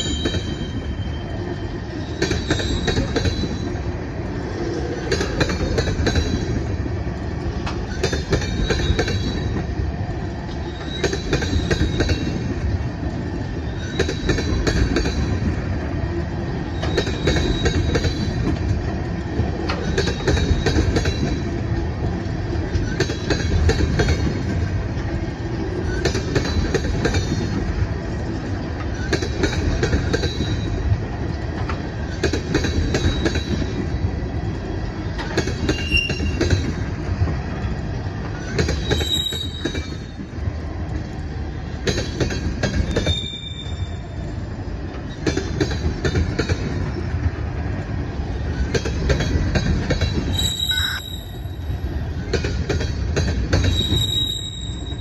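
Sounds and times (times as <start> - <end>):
high wheel squeals: 0.0 - 3.8, 38.8 - 40.1, 42.9 - 44.1, 50.3 - 51.8, 53.6 - 55.0
steel wheels rumbling on rail: 0.0 - 55.0
wheels clicking over rail joint: 16.7 - 21.8.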